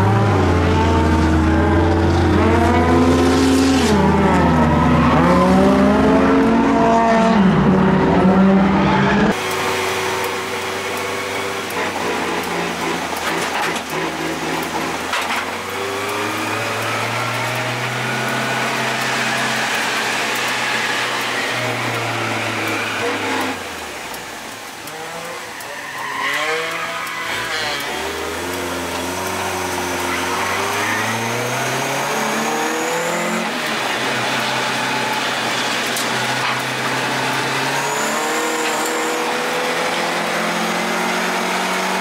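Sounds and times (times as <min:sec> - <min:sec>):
car engine revving: 0:00.0 - 0:42.0.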